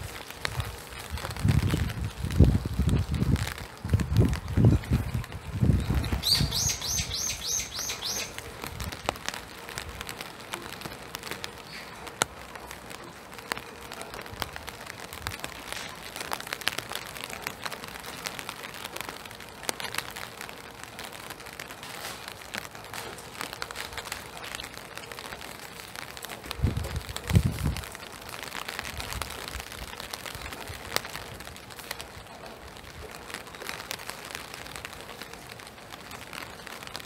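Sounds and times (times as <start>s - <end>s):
rain falling in forest: 0.0s - 37.0s
small bird calling: 6.2s - 8.4s.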